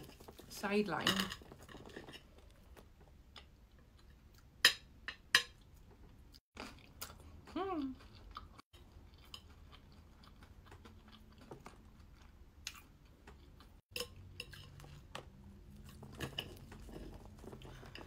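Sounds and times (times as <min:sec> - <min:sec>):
faint chewing: 0:05.6 - 0:18.0.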